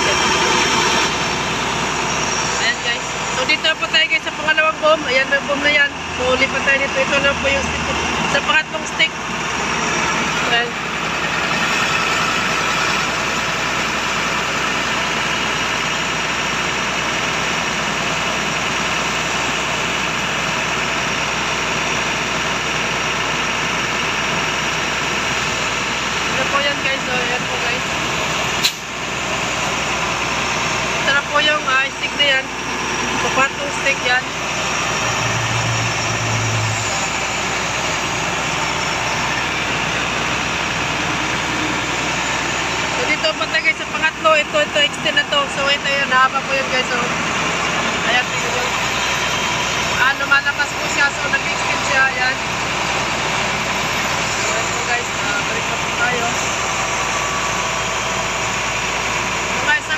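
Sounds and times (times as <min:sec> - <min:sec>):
truck engine droning: 0:00.0 - 0:59.9
low hum: 0:24.4 - 0:59.9.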